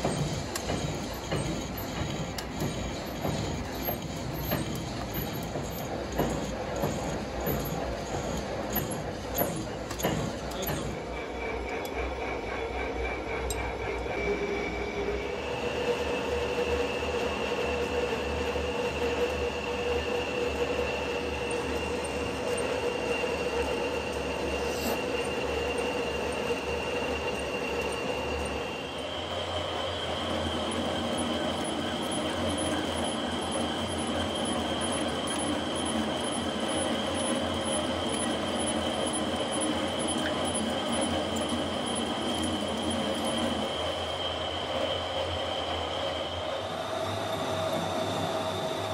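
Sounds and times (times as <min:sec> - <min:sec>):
lathe motor and gear noise: 0:00.0 - 0:48.9.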